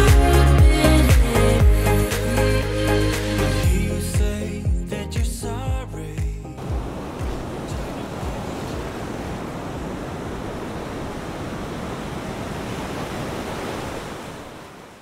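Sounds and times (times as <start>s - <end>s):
ocean surf washing: 6.6s - 15.0s.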